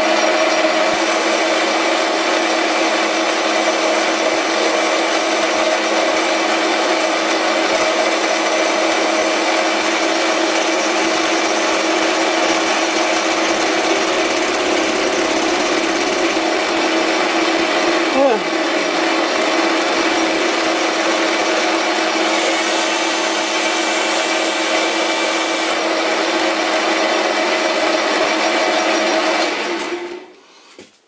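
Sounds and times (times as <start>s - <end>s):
metal lathe humming: 0.0s - 29.4s
cutting tool turning steel: 3.6s - 25.8s.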